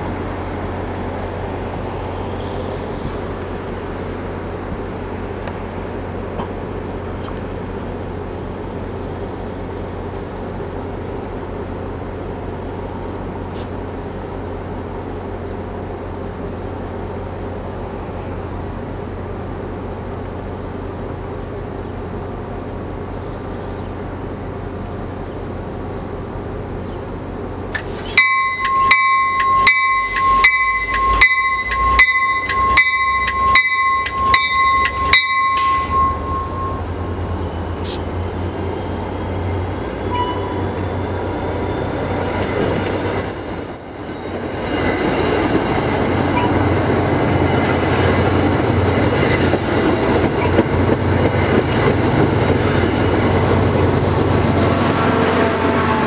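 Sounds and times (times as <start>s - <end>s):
train low hum: 0.0s - 56.0s
train bell ringing: 28.2s - 37.3s, 40.1s - 40.6s, 46.0s - 48.2s.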